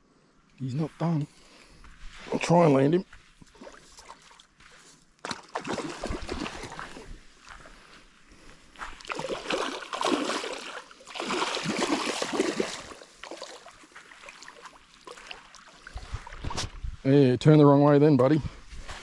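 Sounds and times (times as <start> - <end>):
fish splashing in shallow water: 3.4 - 4.6, 5.2 - 7.2, 8.9 - 16.5.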